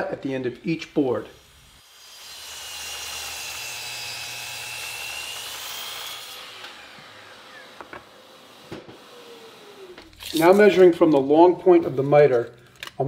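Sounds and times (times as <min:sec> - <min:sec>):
miter saw whining: 0:00.4 - 0:10.4.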